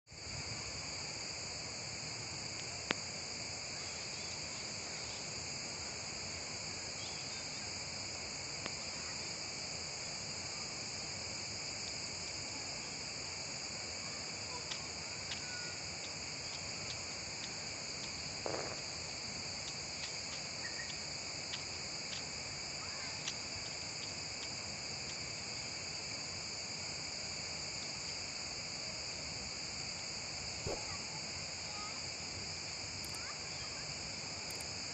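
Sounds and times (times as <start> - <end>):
high-pitched insect chorus: 0.1 - 34.9
faint clicks: 34.4 - 34.7.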